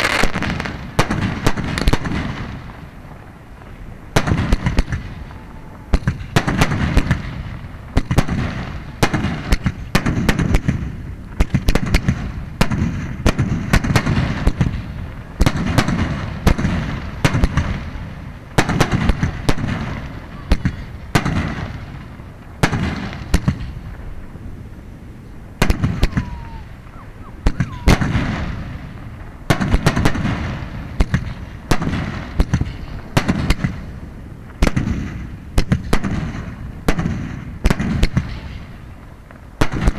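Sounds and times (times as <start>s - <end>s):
firework shells bursting: 25.6s - 33.9s.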